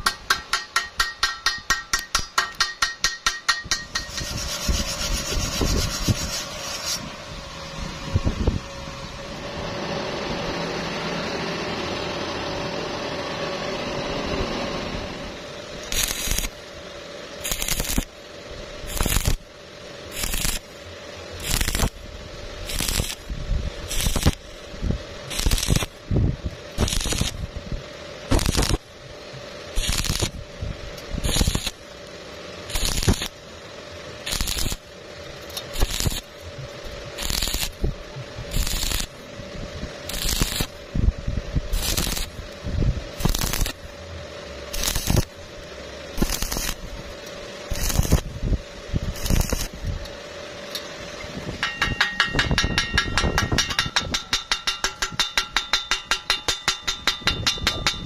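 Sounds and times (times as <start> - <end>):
ringing metallic strokes: 0.0 - 7.1, 51.6 - 58.0
welding arc crackling: 0.0 - 7.1, 15.0 - 58.0
faint steady hum: 7.0 - 58.0.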